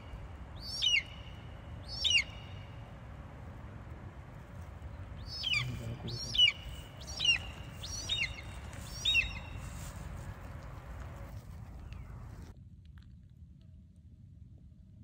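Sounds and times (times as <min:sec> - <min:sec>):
bird whistling falling call: 0:00.0 - 0:02.6, 0:05.2 - 0:09.8.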